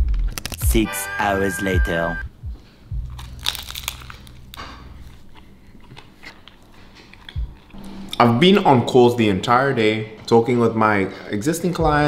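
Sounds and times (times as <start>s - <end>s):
person chewing crunchy food: 3.1s - 8.2s
tortilla crinkling: 3.2s - 7.8s.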